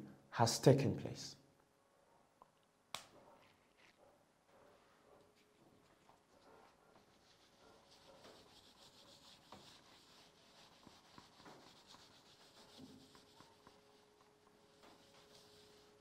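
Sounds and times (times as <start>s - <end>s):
eraser wiping whiteboard: 6.2s - 16.0s.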